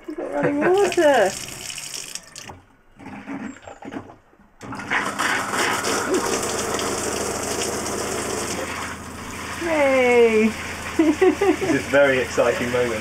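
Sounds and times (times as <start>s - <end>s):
water pump humming: 0.0s - 3.2s, 4.6s - 13.0s
water running from tap: 0.1s - 2.6s, 5.1s - 13.0s.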